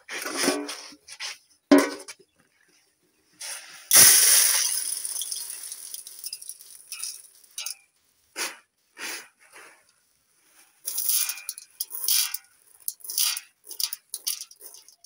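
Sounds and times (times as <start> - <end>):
grain pouring into metal basin: 3.9 - 7.8, 10.8 - 15.0.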